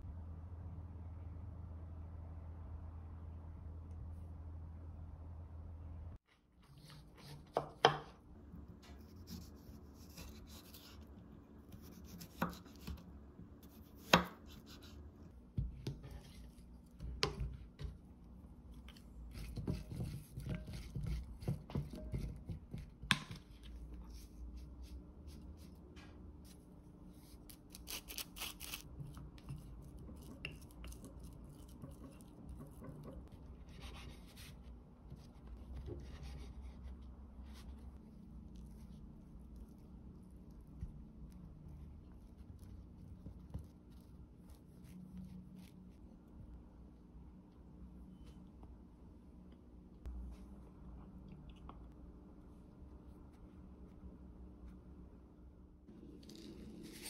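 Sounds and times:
low steady hum: 0:00.0 - 0:57.0
knife slicing cucumber on board: 0:06.8 - 0:08.2, 0:11.7 - 0:13.0, 0:13.6 - 0:14.9.

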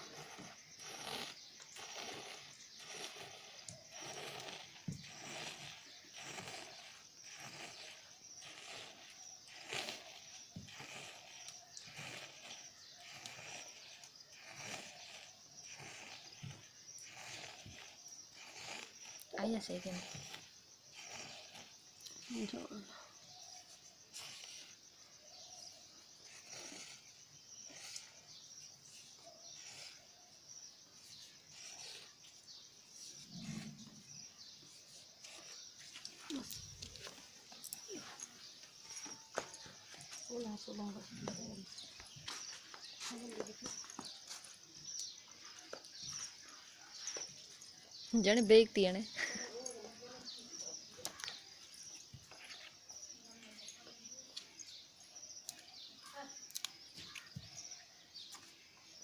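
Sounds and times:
milk squirts hissing into steel pot: 0:00.0 - 0:22.9
high insect-like trill: 0:00.0 - 0:59.0.

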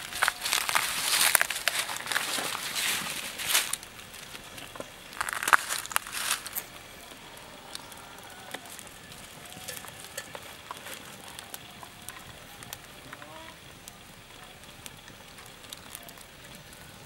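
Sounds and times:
rustling: 0:00.0 - 0:07.2
fire crackling: 0:00.0 - 0:17.0
food frying over wood fire: 0:00.0 - 0:17.0.

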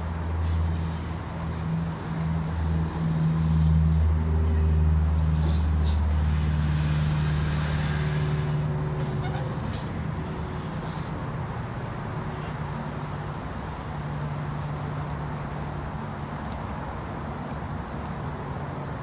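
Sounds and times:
low motor hum: 0:00.0 - 0:11.3.

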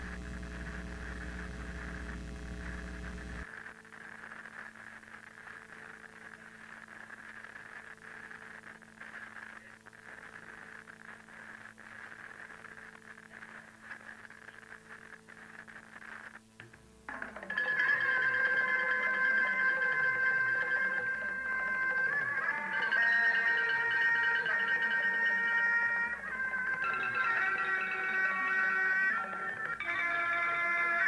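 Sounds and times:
low electrical buzz: 0:00.0 - 0:17.5
crackling tape hiss: 0:00.0 - 0:31.0
faint hum: 0:00.0 - 0:31.0.

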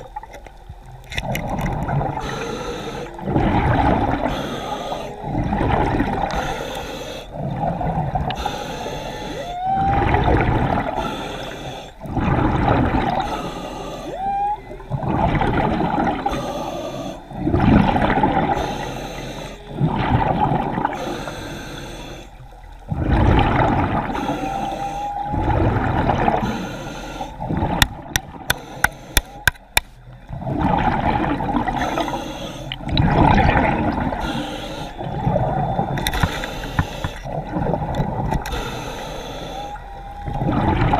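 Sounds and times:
diver breathing bubbles underwater: 0:01.2 - 0:40.9
sharp clicks: 0:27.8 - 0:30.0.

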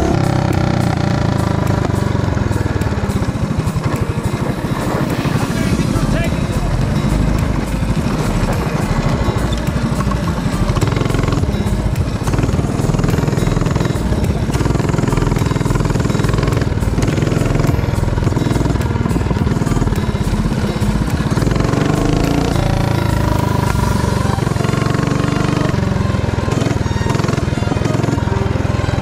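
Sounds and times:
small engine running: 0:00.0 - 0:29.0.

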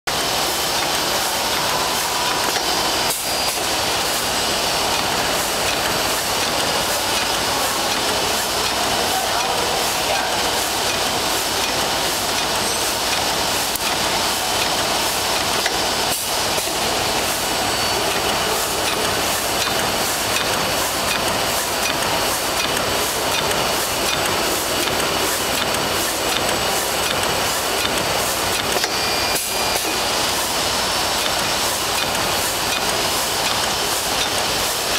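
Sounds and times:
bag-making machine clattering: 0:00.1 - 0:34.9
fast regular ticking: 0:18.0 - 0:28.8.

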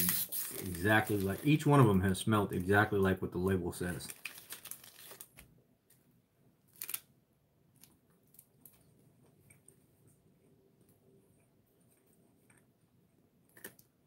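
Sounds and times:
plastic wrapper crinkling: 0:00.0 - 0:01.9, 0:03.9 - 0:05.5, 0:06.7 - 0:07.1.

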